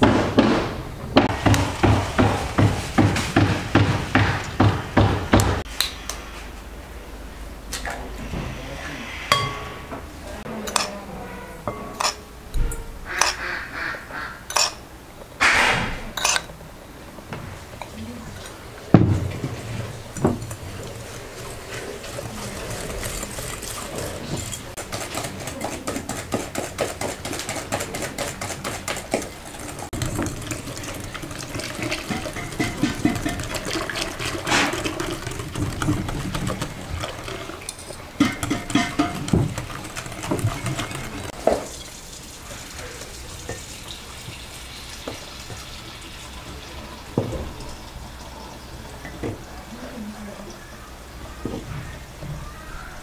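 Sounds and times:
wet stirring: 10.6 - 14.8, 17.6 - 49.2
liquid pouring: 18.3 - 24.7, 29.4 - 49.1.

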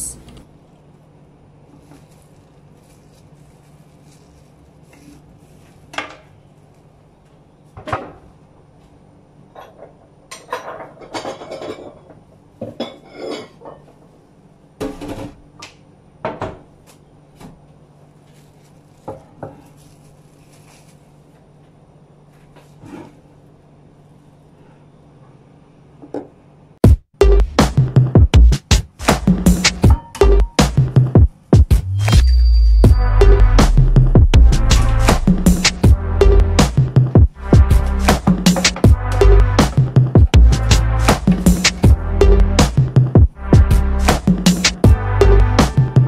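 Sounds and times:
dishes and utensils clattering: 9.6 - 14.0.

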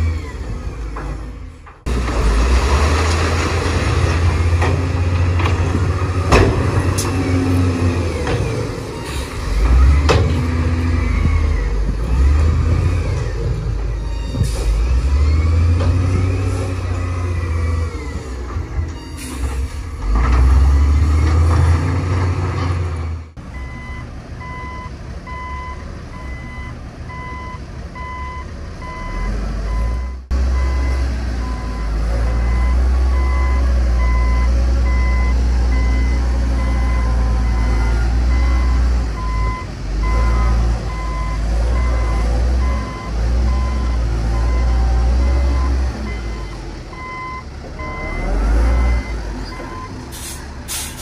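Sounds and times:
heavy diesel machine engine: 0.0 - 51.0
reversing alarm beeping: 23.6 - 50.0.

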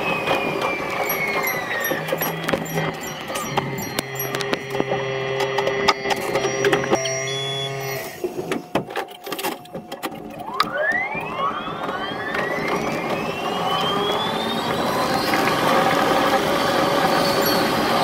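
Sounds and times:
electric train motors whining: 0.0 - 18.0
sharp clicks and knocks: 0.3 - 7.2.

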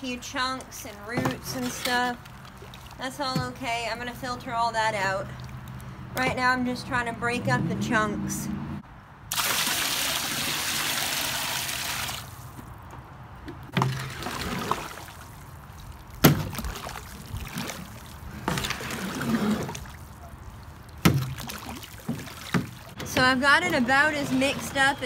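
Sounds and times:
wet clay sloshing: 0.1 - 6.2, 13.7 - 25.0.

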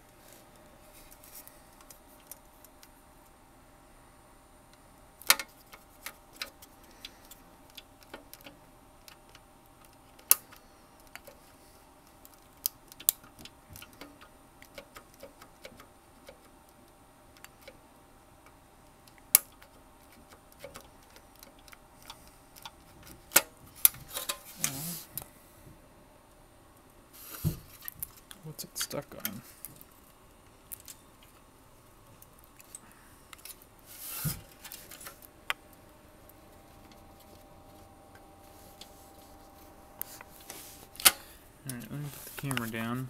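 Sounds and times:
circuit board clicking in metal frame: 12.6 - 16.5.

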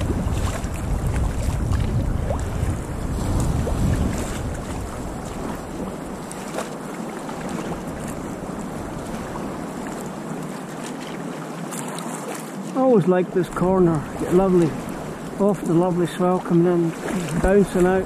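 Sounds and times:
wind buffeting microphone: 0.0 - 10.5, 13.4 - 18.0
sea water washing: 0.0 - 18.0.

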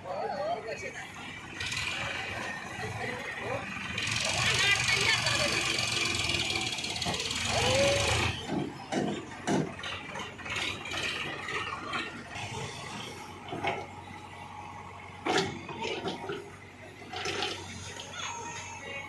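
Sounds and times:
heavy machinery running: 0.6 - 19.0
metallic clanks and knocks: 8.4 - 12.2.

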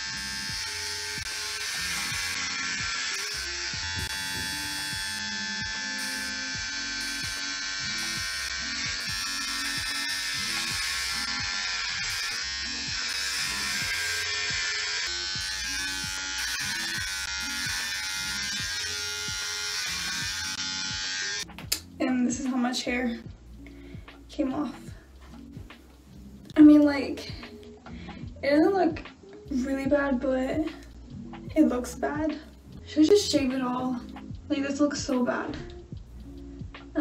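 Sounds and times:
electric hair clippers buzzing: 0.0 - 21.9
background music: 0.0 - 37.0.

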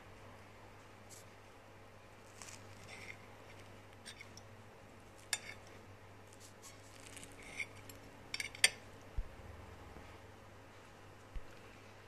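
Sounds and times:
fork cutting cake: 2.2 - 4.5, 5.1 - 8.8
fork scraping and tapping plate: 5.2 - 5.7.

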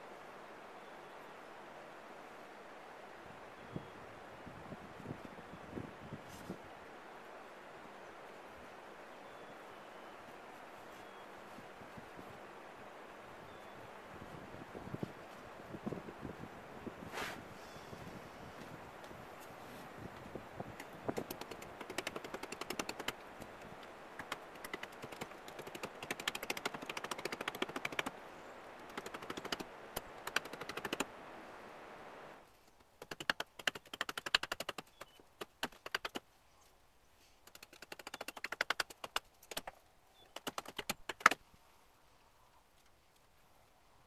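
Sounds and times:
hatchet chopping wood: 33.0 - 36.2.

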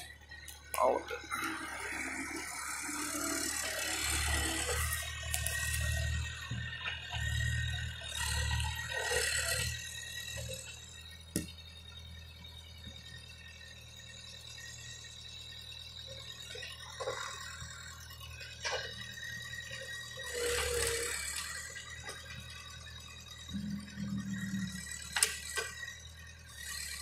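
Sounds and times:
loader engine rattling: 0.0 - 27.0.

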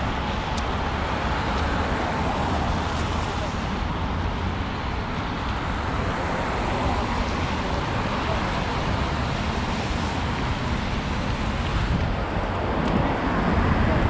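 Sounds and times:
cars passing: 0.0 - 14.0.

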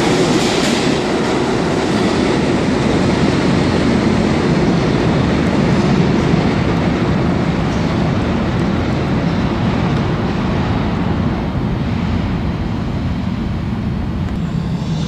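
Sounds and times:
subway train rumbling: 0.0 - 15.0.

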